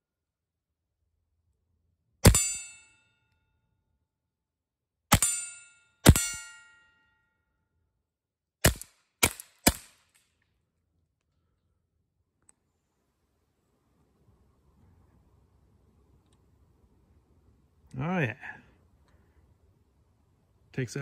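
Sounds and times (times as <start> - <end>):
steel plate ringing: 2.2 - 3.2, 5.1 - 7.2
suppressed pistol shots: 5.1 - 5.4, 8.6 - 10.2.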